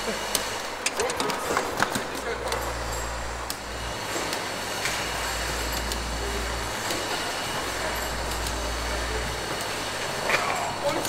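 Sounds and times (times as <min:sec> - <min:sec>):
machine noise: 0:00.0 - 0:11.0
low hum: 0:02.3 - 0:10.9.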